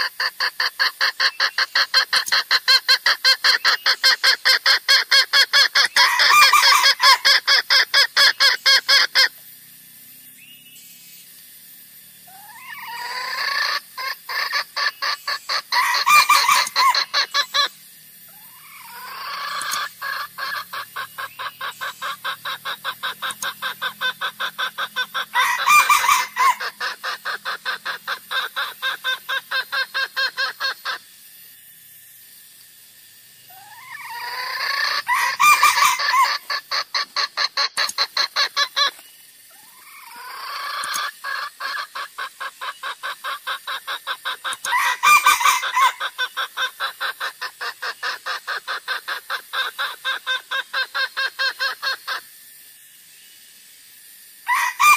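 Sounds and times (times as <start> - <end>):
rapid clucking lure call: 0.0 - 9.6, 11.7 - 31.6, 33.2 - 52.7
louder bird call: 12.3 - 31.0, 33.5 - 39.0.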